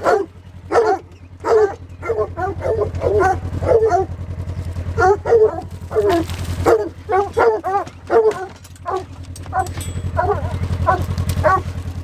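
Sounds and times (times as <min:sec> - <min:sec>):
dogs barking: 0:00.0 - 0:12.0
low engine hum: 0:00.0 - 0:12.0.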